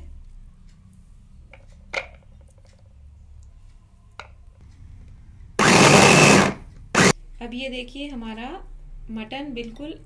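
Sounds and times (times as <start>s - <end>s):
electric chopper motor mincing: 5.6s - 7.1s.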